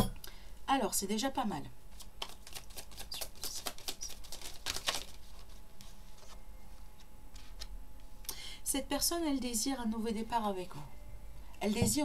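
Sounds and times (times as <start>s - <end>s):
cards being shuffled: 1.9s - 6.4s
cards tapped down on cloth: 2.2s - 5.1s.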